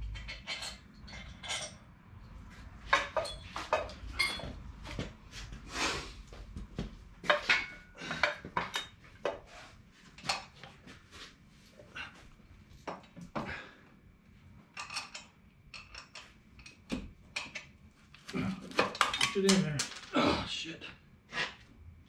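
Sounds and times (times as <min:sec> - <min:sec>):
metallic clanks and clinks: 0:00.0 - 0:01.9, 0:02.9 - 0:04.6, 0:18.8 - 0:20.2.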